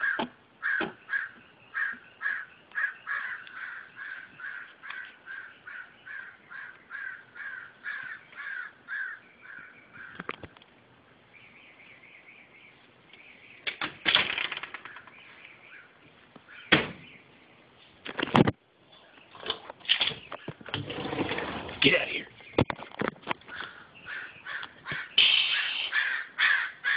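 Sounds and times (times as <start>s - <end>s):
crows cawing: 0.0s - 10.3s, 23.4s - 26.9s.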